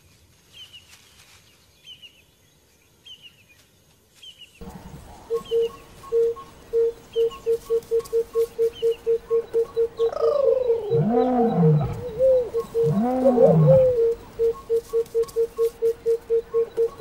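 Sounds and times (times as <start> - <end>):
lion calling: 9.4 - 14.8.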